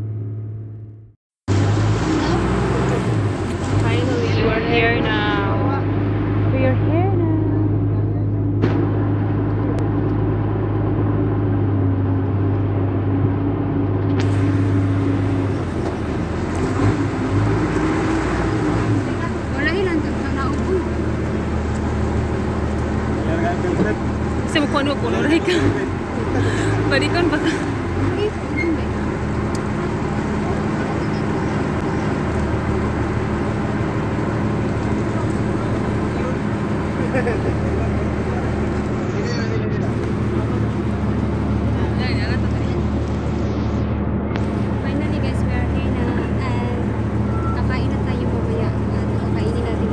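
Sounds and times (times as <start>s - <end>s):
boat engine droning: 1.5s - 49.9s
rush of noise: 20.2s - 49.9s.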